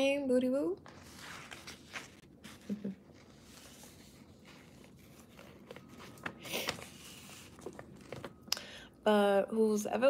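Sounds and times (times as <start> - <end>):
paper rustling and sliding: 0.8 - 8.4.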